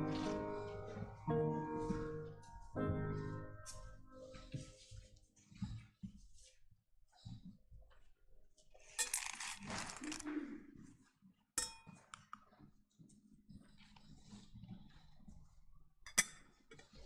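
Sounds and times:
soft rustling and shuffling: 0:00.0 - 0:11.3.

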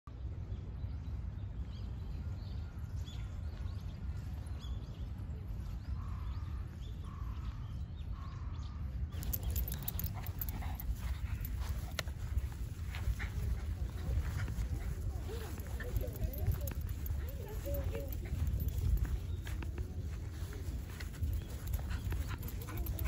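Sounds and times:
small birds chirping: 0:03.0 - 0:23.0
dog paws pattering on grass: 0:09.2 - 0:23.0.

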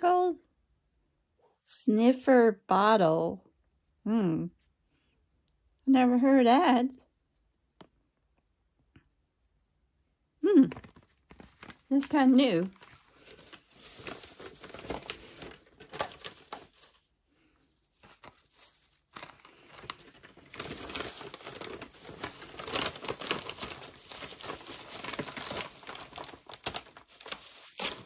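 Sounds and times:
plastic wrap crinkling: 0:10.7 - 0:28.0.

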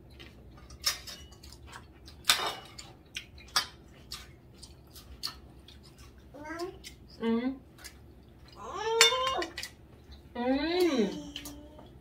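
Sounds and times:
cutlery clinking on plates: 0:00.1 - 0:03.8, 0:08.9 - 0:09.8.

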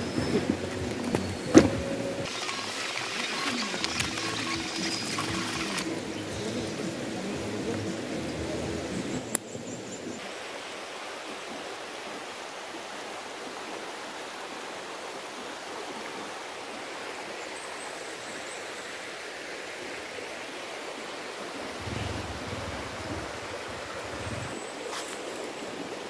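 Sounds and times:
forest ambience rushing hiss: 0:00.0 - 0:26.0
low rumbles: 0:21.8 - 0:24.6.

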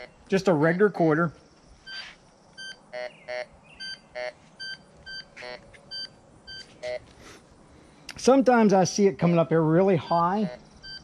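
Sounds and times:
metal detector beeping: 0:00.0 - 0:00.3, 0:01.8 - 0:07.1, 0:10.0 - 0:11.0.

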